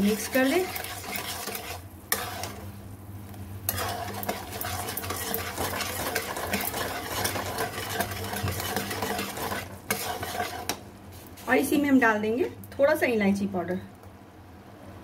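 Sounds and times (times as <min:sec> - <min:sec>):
metal spatula scraping a pot: 0:00.0 - 0:02.6, 0:03.7 - 0:10.8.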